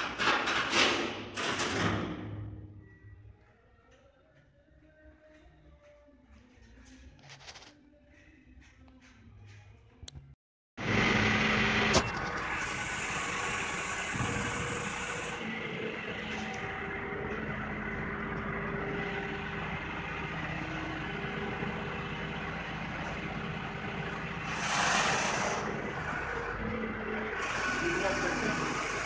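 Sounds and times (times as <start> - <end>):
industrial machinery hum: 10.8 - 29.0.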